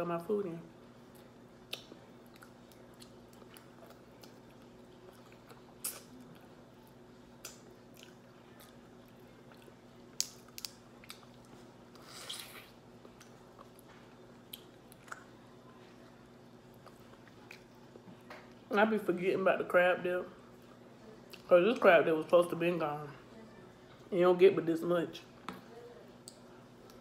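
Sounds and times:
quiet chewing: 1.1s - 18.6s, 26.1s - 27.0s.

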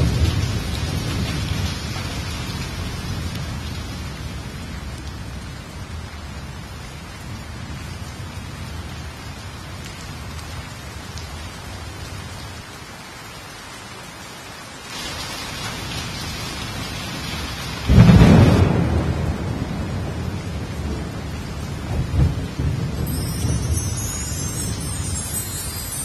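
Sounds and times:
low rumbling thunder: 0.0s - 2.3s, 17.9s - 23.7s
heavy rain falling: 0.0s - 26.0s
loud thunderclap: 17.9s - 23.8s.

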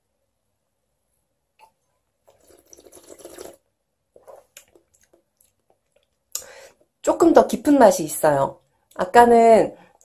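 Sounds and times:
wine slurped in mouth: 2.3s - 3.6s.

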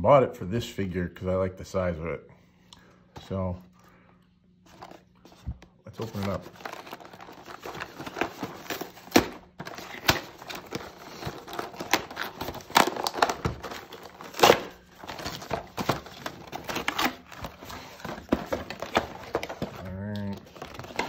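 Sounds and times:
cardboard box tearing: 6.5s - 19.8s.

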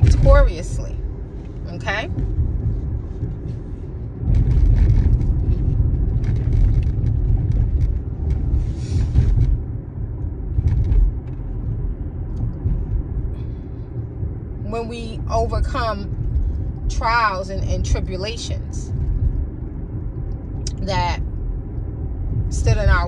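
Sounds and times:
road rumble inside car: 0.0s - 23.0s.

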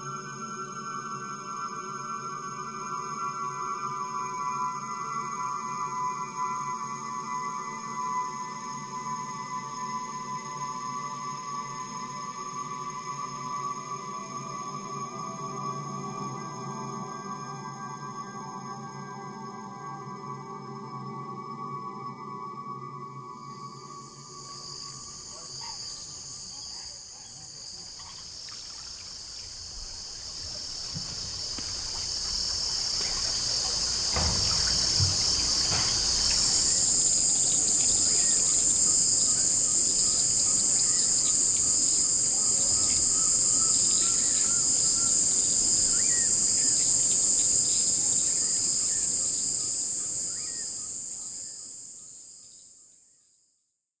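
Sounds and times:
insects trilling: 0.0s - 52.9s
faint scattered calls: 23.3s - 30.3s.

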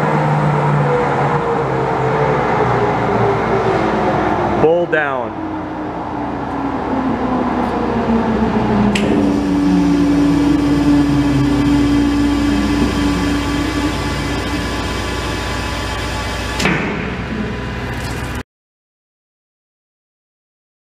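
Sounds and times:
mixer motor drone: 6.4s - 18.4s
click: 8.9s - 9.2s
steady tone: 8.9s - 18.4s.

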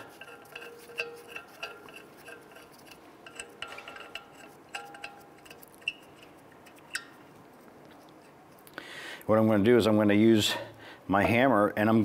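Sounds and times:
metal bolts clinking: 0.0s - 7.2s.

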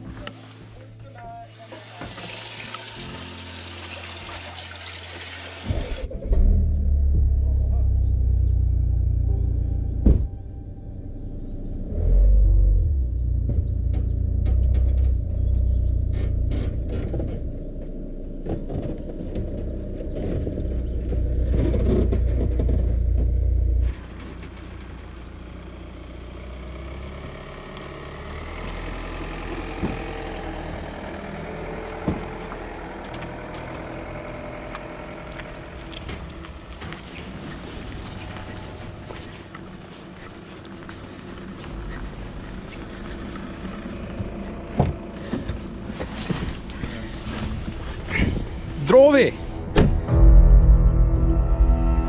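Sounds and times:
heavy low rumble: 5.7s - 25.9s, 29.1s - 52.0s
vehicle driving past on asphalt: 10.9s - 48.8s
trailer knocking: 29.5s - 39.7s, 41.7s - 52.0s.

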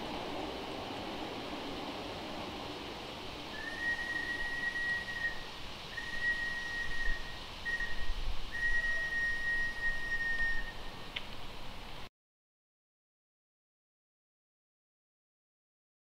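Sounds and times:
steam whistle blasts: 3.5s - 11.0s.

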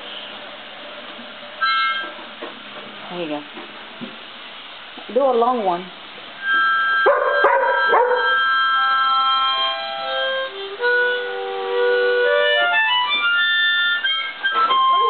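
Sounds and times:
harmonica playing chords: 1.6s - 2.2s, 6.4s - 15.0s.

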